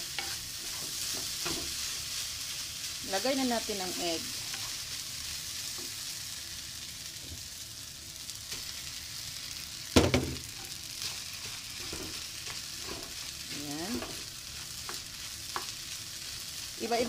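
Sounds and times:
rice sizzling in a frying pan: 0.0 - 17.0
wooden spatula stirring: 10.6 - 17.0.

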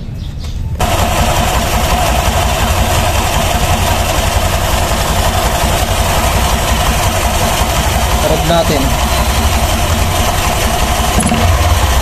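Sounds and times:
scooter engine idling: 0.8 - 12.0.

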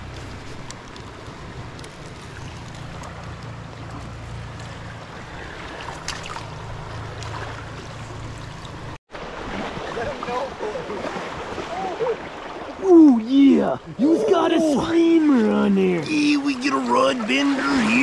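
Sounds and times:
fast-flowing river rushing: 9.2 - 18.0.

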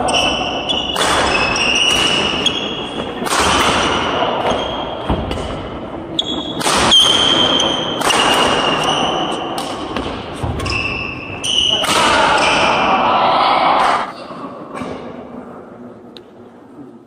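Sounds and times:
sneakers squeaking on floor: 0.0 - 12.8
rackets striking shuttlecock: 0.1 - 10.9.

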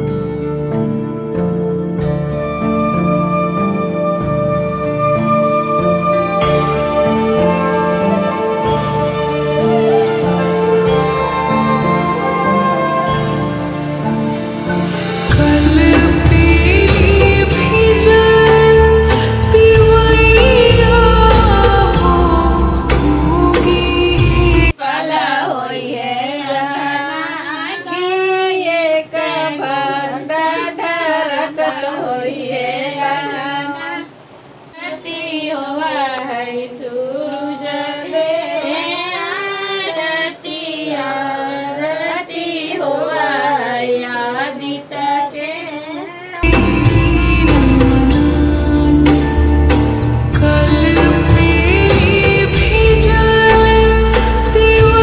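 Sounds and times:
background music: 0.0 - 24.8, 46.4 - 55.0
women singing unaccompanied: 15.3 - 49.6, 50.3 - 55.0.

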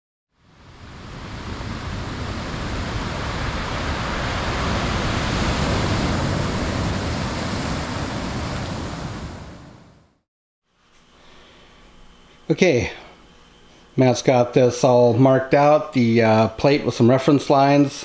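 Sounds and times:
steady rushing noise: 0.4 - 10.0.

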